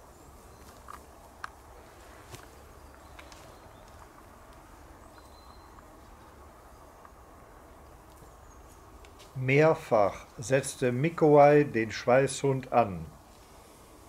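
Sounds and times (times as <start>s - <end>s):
footsteps in dry grass: 0.0s - 6.3s
low steady rumble: 0.0s - 14.0s.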